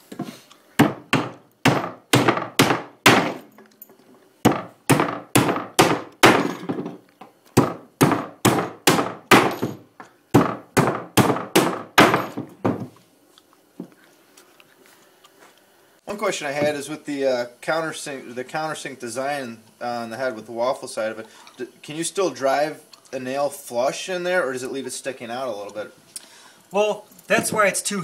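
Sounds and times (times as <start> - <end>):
hammer striking wood: 0.8 - 3.5, 4.4 - 6.9, 7.6 - 12.9.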